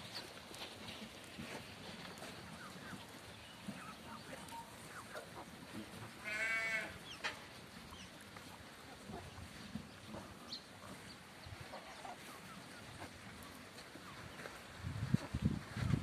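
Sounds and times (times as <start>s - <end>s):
faint flock calls: 2.2s - 7.4s, 8.8s - 14.6s
sheep bleating: 6.2s - 7.0s.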